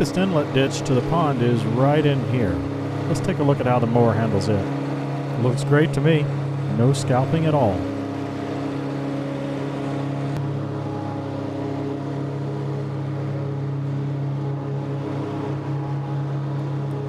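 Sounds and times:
rotary mower cutting grass: 0.0 - 17.0
tractor engine running: 0.0 - 17.0.

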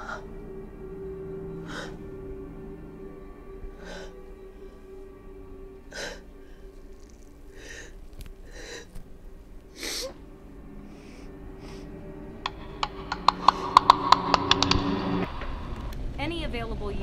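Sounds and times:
low steady drone: 0.0 - 17.0
woman gasping breaths: 1.6 - 2.0, 3.7 - 4.2, 5.9 - 10.2
sharp clicks: 12.4 - 16.0.

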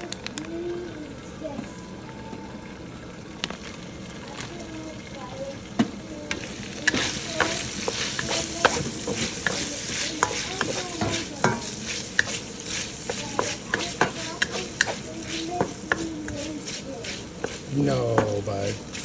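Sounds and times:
bacon sizzling in a wok: 3.2 - 19.0
metal utensil scraping a pan: 6.9 - 19.0.

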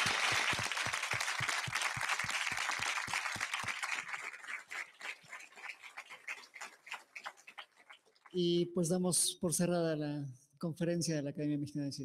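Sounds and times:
audience applauding: 0.0 - 8.3.

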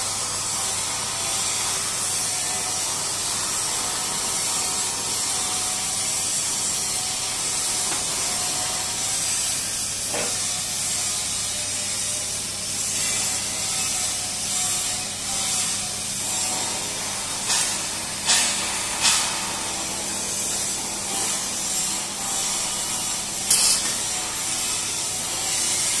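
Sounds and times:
steady hiss: 16.6 - 25.9.

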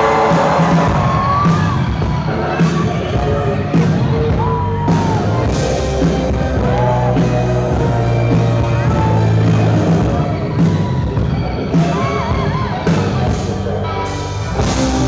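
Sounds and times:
drums: 0.0 - 15.0
electric guitar: 0.0 - 15.0.

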